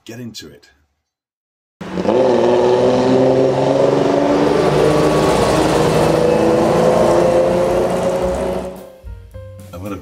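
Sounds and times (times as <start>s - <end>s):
car engine revving high: 1.8s - 8.9s.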